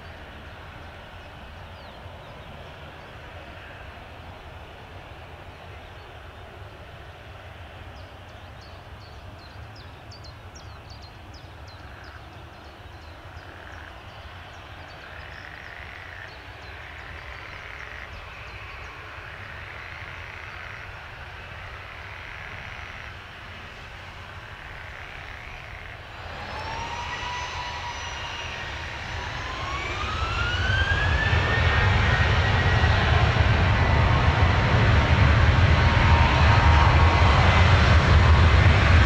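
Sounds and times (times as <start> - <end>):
distant jet engines rumbling: 0.0 - 39.0.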